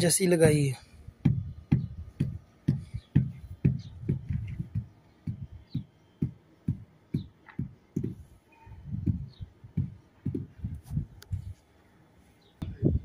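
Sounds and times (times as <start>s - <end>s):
low percussive thumps: 0.4s - 8.2s, 8.8s - 11.1s.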